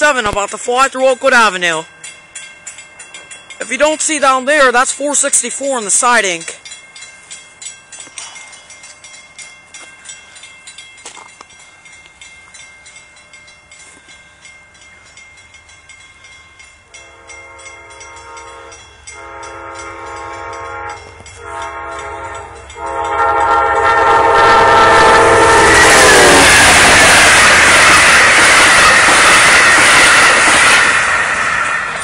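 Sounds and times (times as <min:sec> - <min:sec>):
passing train and wheels rushing: 0:00.0 - 0:32.0
locomotive air horn blasts: 0:17.0 - 0:26.8.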